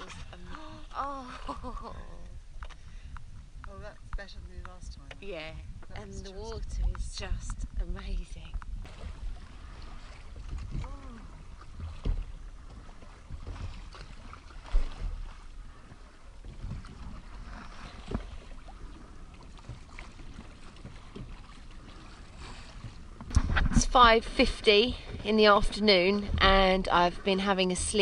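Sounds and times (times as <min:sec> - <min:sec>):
wind rumble on microphone: 0:00.0 - 0:28.0
oars splashing in water: 0:08.3 - 0:28.0.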